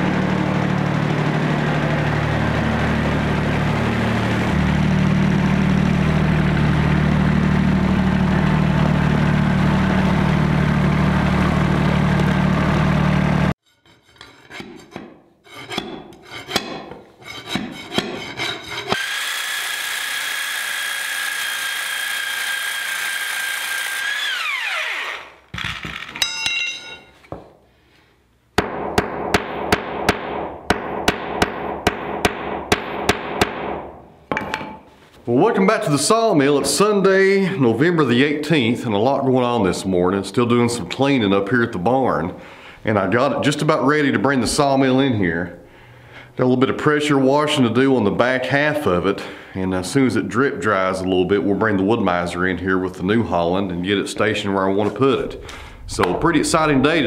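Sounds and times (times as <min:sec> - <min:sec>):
cordless power tool whine: 0:00.0 - 0:13.5, 0:19.0 - 0:25.9
tractor engine running: 0:00.0 - 0:13.6
regular sharp knocks: 0:28.5 - 0:34.8.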